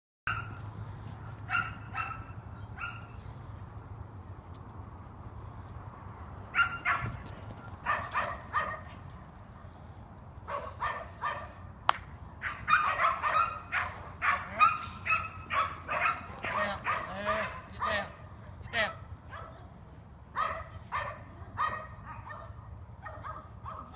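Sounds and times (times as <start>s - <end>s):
dog barking and yipping: 0.3s - 3.2s, 6.4s - 9.0s, 10.4s - 11.6s, 12.4s - 19.6s, 20.4s - 23.9s.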